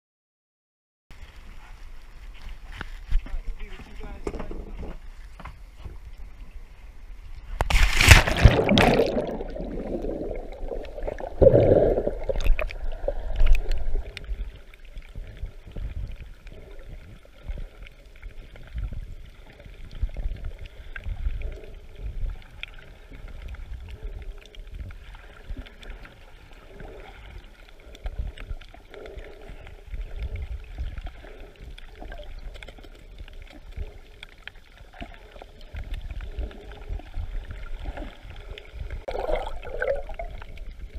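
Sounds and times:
underwater water sloshing and gurgling: 0:01.2 - 0:40.9
rush of water: 0:07.5 - 0:21.7
loud splash into sea: 0:07.7 - 0:09.7.

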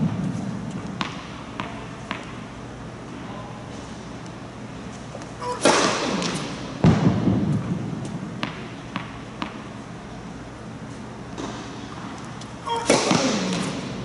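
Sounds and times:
ball bouncing on hard court: 0:00.0 - 0:02.4, 0:05.2 - 0:09.7, 0:12.7 - 0:14.0
racket striking tennis ball: 0:00.1 - 0:02.4, 0:05.2 - 0:09.7, 0:12.7 - 0:14.0.

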